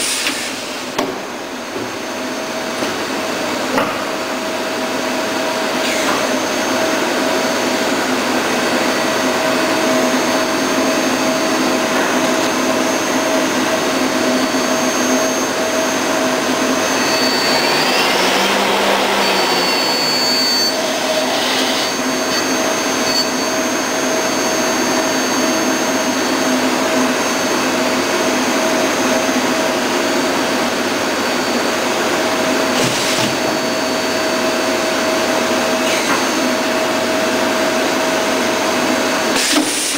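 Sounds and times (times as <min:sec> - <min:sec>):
machine tool whirring: 0:15.0 - 0:24.3
short high tone: 0:16.8 - 0:23.6.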